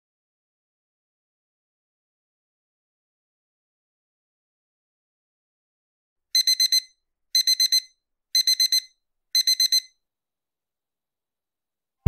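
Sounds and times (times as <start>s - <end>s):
alarm clock beeping: 6.4s - 9.9s.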